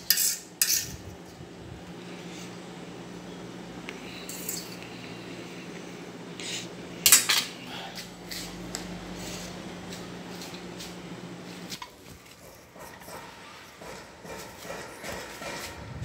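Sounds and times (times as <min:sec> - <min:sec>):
cutlery clatter: 0:00.0 - 0:01.0, 0:07.1 - 0:07.5
cutlery clinking on dishes: 0:07.0 - 0:07.5.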